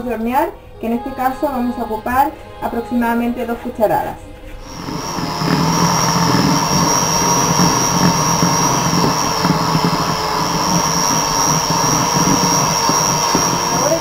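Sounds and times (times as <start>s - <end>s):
electric hand mixer whining: 4.6s - 14.0s.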